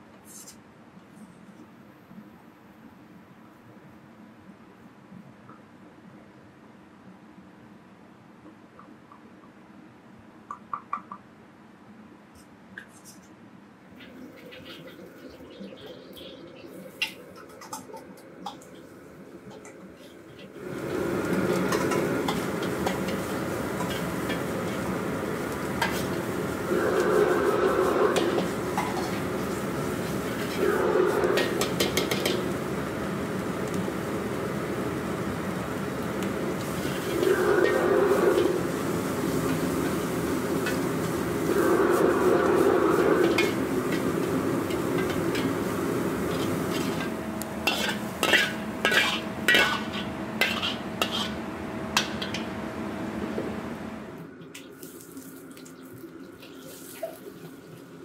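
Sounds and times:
steady background rush: 14.0s - 53.9s
wok burner roaring: 14.0s - 54.4s
meat frying in wok: 20.6s - 41.5s, 42.5s - 52.6s
meat sizzling in a wok: 42.5s - 51.4s
metal ladle scraping a wok: 44.8s - 51.4s.

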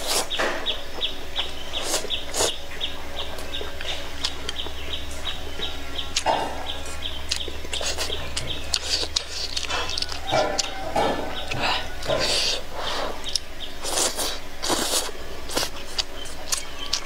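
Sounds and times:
bird chirping: 0.0s - 17.0s
woman slurping and chewing noodles: 11.4s - 16.6s.

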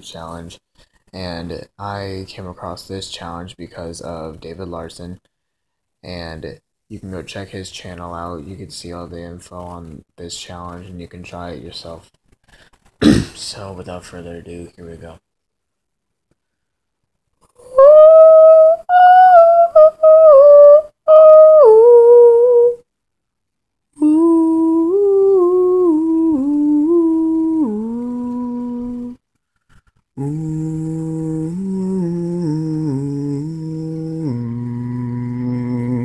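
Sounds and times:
man singing: 24.0s - 29.2s, 30.2s - 36.0s.

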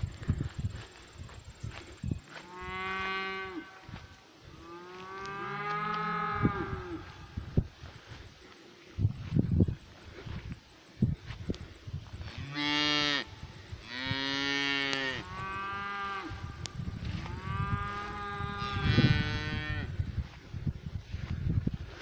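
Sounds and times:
cattle mooing: 4.5s - 7.1s, 17.2s - 19.9s.

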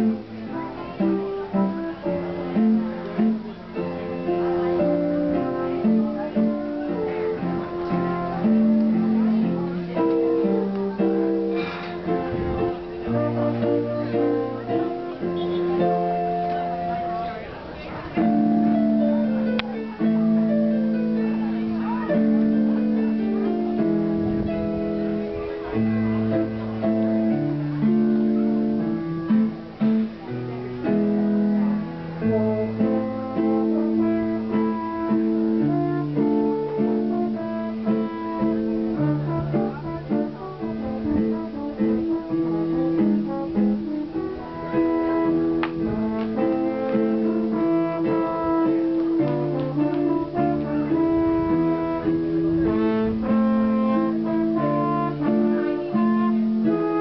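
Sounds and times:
french horn melody: 0.0s - 17.5s, 30.9s - 57.0s
electronic keyboard chords: 0.0s - 57.0s.

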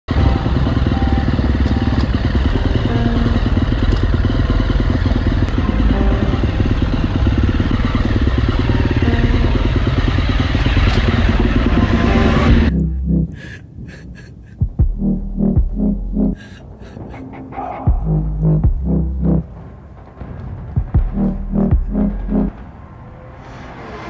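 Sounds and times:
dirt bike engine running: 0.1s - 13.2s, 17.9s - 19.6s, 20.8s - 22.6s.

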